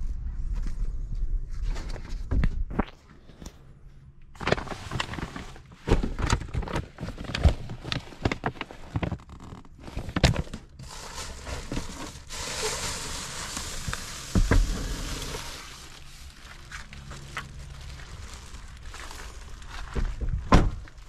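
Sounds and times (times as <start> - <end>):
plastic bag rustling: 4.4 - 21.0.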